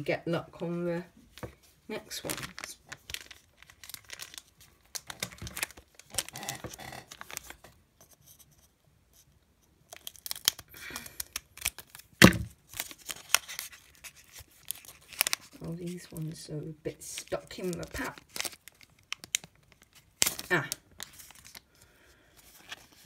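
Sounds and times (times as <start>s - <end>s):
foil crinkling: 2.1s - 7.7s, 9.9s - 16.4s, 17.0s - 23.0s.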